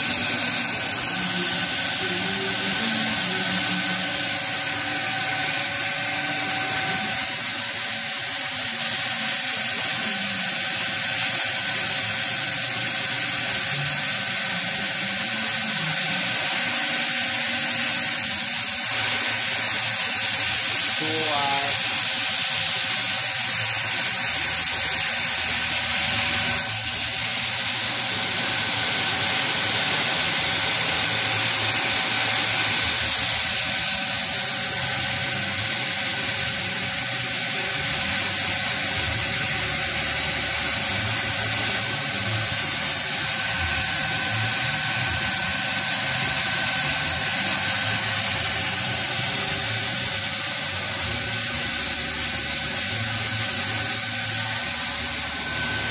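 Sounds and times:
coolant spray hissing: 0.0 - 55.9
machine whine: 0.0 - 55.9.

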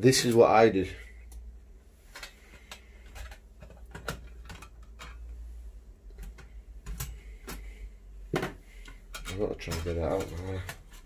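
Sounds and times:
metal stove panels clinking: 9.1 - 10.6.

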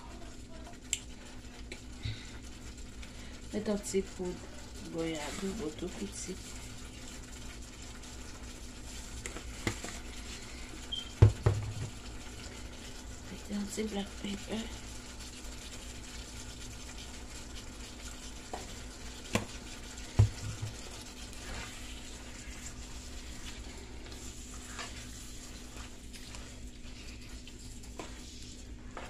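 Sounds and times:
food sizzling in a frying pan: 0.0 - 29.0
dull knock: 11.2 - 11.9
spoon stirring: 16.8 - 29.0.

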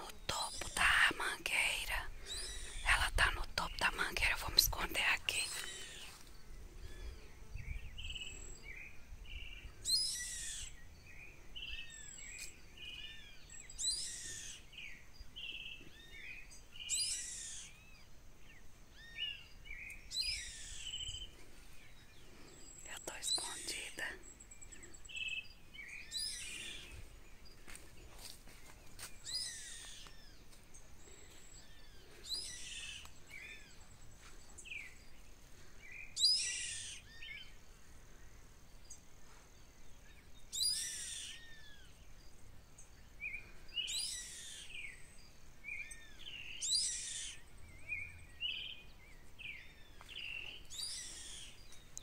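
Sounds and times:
small birds chirping: 0.0 - 52.0
bird of prey calling: 2.2 - 2.9, 9.8 - 10.8, 13.1 - 14.7, 16.8 - 18.0, 20.0 - 21.3, 29.2 - 30.3, 36.1 - 37.5, 40.5 - 41.9, 43.8 - 45.0, 45.8 - 47.5, 50.2 - 51.6.

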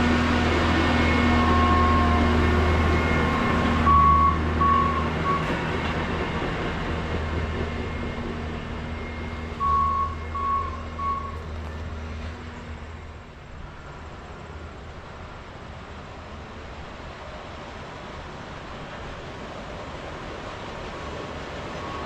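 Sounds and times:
track machine engines running: 0.0 - 22.0
warning beeper beeps: 2.6 - 5.5, 9.0 - 11.4.

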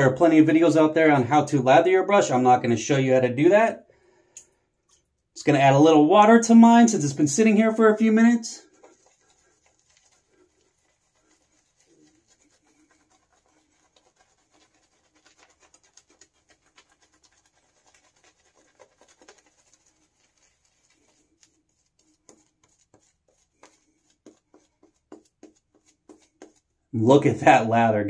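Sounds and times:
shaving brush scratching on skin: 7.0 - 26.9.

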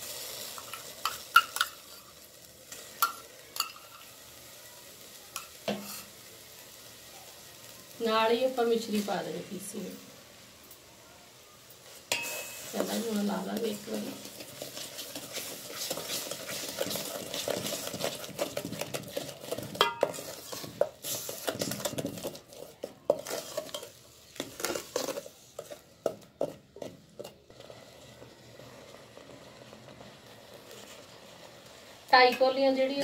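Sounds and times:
wooden spoon scraping steel pot: 12.1 - 33.0.

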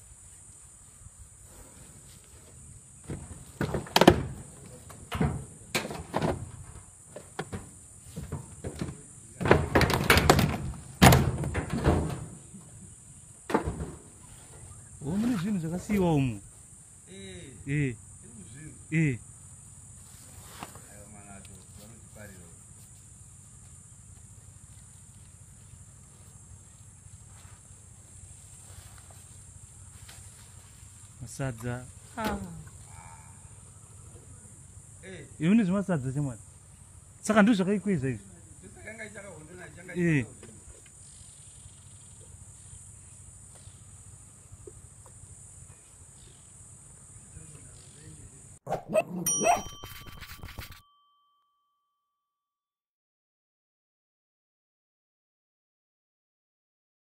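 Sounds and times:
sheet metal bangs and crunches: 7.4 - 12.4
high-pitched insect drone: 14.2 - 48.6.

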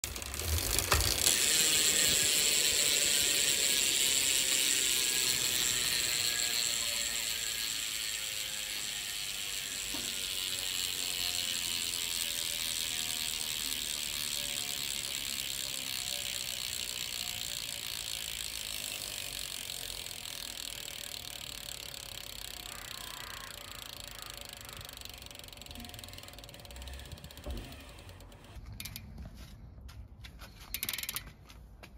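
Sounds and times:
bike hub freewheel clicking: 0.0 - 29.1, 30.7 - 31.4.

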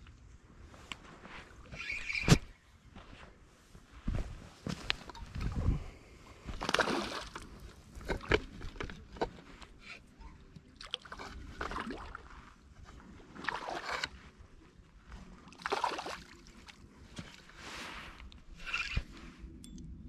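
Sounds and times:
water sloshing and swishing: 6.4 - 19.5.

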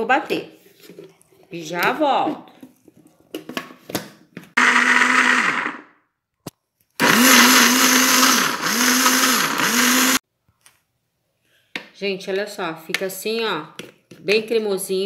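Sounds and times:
electric blender running: 4.6 - 5.9, 7.0 - 10.2.

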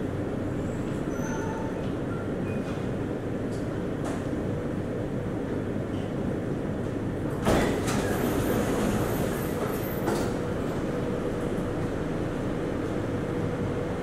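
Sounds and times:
low hum of stopped train: 0.0 - 14.0
train doors sliding open: 0.8 - 4.4, 6.8 - 12.0.

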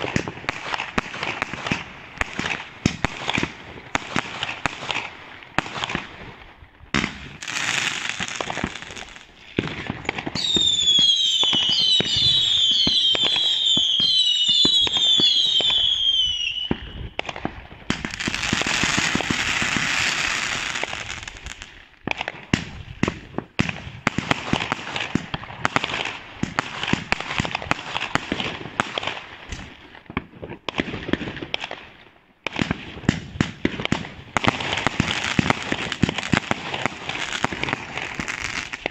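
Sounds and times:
firework bangs and crackling: 0.0 - 38.9
hissing rush of sparkling fireworks: 0.0 - 38.9
descending firework whistles: 10.4 - 17.2.

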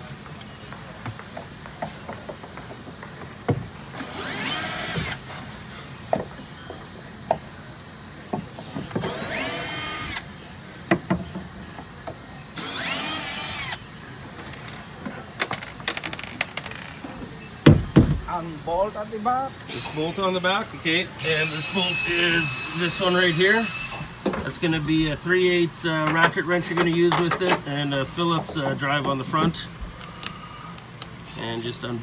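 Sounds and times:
cordless drill whining: 4.0 - 5.2, 9.0 - 10.2, 12.6 - 13.8, 21.2 - 24.1
handling clicks and knocks: 14.4 - 18.3.

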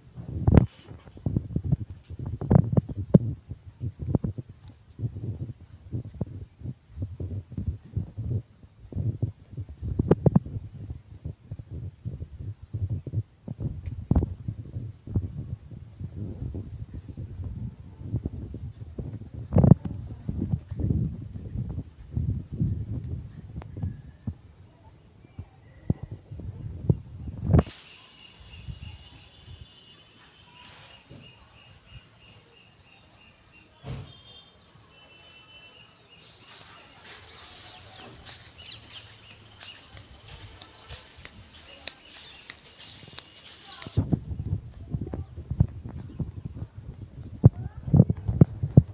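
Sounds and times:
birds chirping: 27.6 - 44.0.

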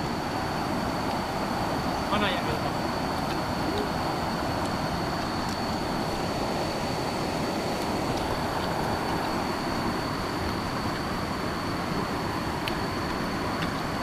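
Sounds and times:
river water rushing over rocks: 0.0 - 14.0.

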